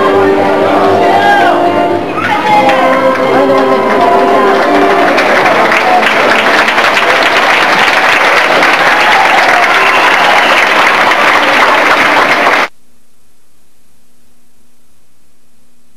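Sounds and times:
large audience applauding: 2.2s - 12.7s.

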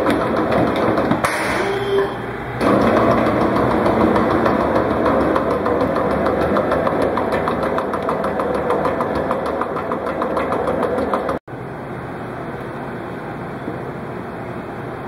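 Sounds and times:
slicing machine running: 0.0s - 11.4s
rapid regular clicking: 2.6s - 11.4s.

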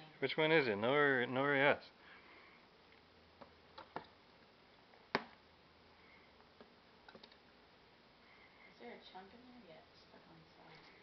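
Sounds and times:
faint clicks and taps: 2.9s - 4.5s, 6.4s - 7.5s.

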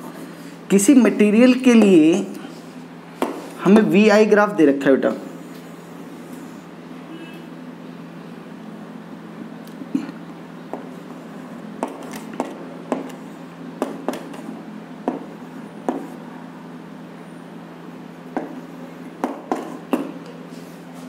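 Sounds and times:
steady low hum: 0.0s - 21.0s
chalk tapping and scraping on blackboard: 3.2s - 3.6s, 11.8s - 16.2s, 18.3s - 20.8s.

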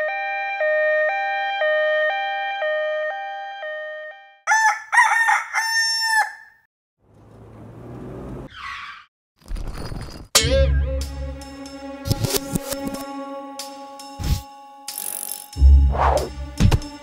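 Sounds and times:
rooster-like crowing call: 4.5s - 6.6s.

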